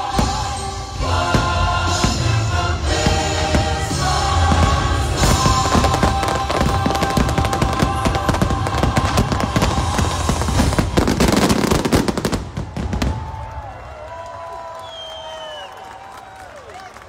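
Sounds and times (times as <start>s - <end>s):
show music: 0.0s - 12.3s
fireworks bangs and crackles: 0.0s - 13.9s.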